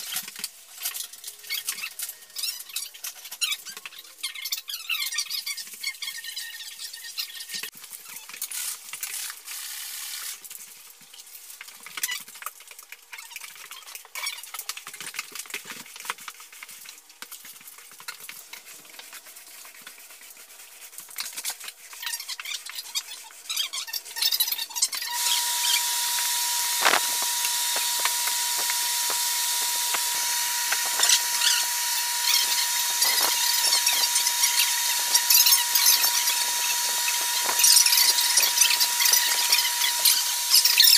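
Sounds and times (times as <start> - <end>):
rag wiping: 18.6 - 40.9
squeaks on wood floor: 22.0 - 40.9
machine hum with whine: 25.1 - 40.9.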